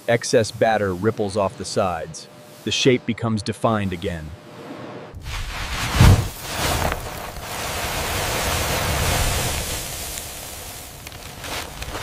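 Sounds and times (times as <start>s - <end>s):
crumbs pouring hiss: 5.3s - 12.0s.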